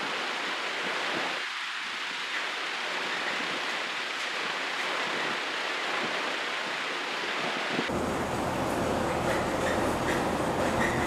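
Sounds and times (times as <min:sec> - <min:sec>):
fan rushing air: 0:07.6 - 0:11.0
deep fan hum: 0:07.9 - 0:11.0.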